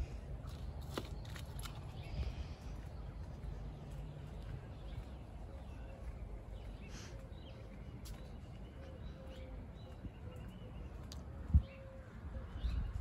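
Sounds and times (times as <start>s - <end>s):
low wind rumble on microphone: 0.0s - 6.6s, 9.7s - 13.0s.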